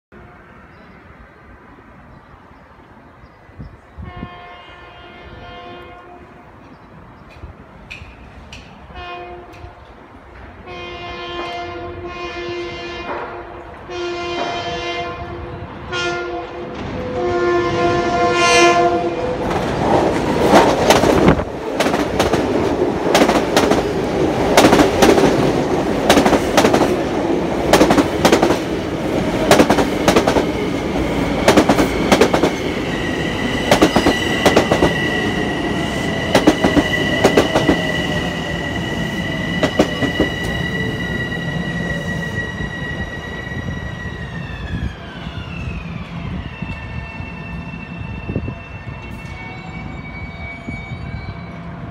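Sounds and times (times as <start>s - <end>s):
train horn blasts: 4.0s - 6.6s, 8.9s - 9.8s, 10.6s - 19.5s
train wheels clicking over rail joints: 7.2s - 8.9s, 19.4s - 28.8s, 29.4s - 35.1s, 36.1s - 38.0s
high-pitched train whine: 8.0s - 51.9s.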